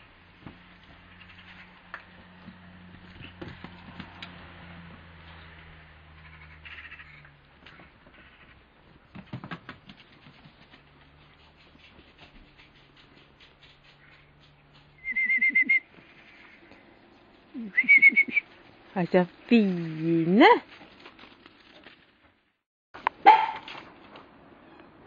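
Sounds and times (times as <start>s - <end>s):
high warbling whistle-like call: 15.0s - 15.9s, 17.6s - 18.5s.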